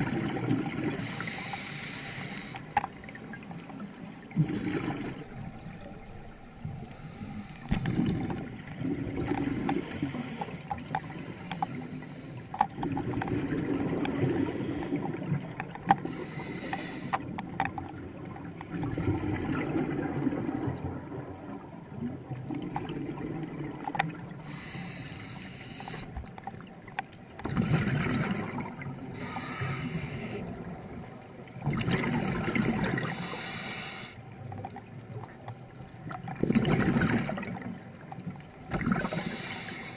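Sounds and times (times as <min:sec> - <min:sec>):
exhaled bubbles rumbling: 0:00.0 - 0:01.1, 0:04.1 - 0:10.9, 0:12.7 - 0:16.1, 0:17.5 - 0:24.4, 0:27.4 - 0:29.2, 0:30.5 - 0:33.2, 0:36.1 - 0:37.8
regulator inhale hiss: 0:01.0 - 0:03.9, 0:06.4 - 0:07.9, 0:10.8 - 0:12.6, 0:16.0 - 0:17.3, 0:24.4 - 0:26.2, 0:29.1 - 0:30.5, 0:33.0 - 0:34.2, 0:39.0 - 0:39.9.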